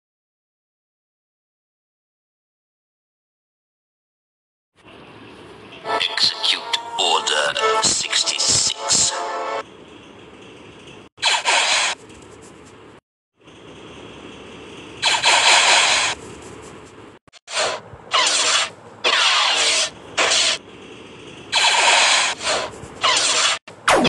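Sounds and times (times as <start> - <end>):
lightsaber swings and clashes: 15.0 - 16.2, 17.5 - 20.6, 21.5 - 24.0.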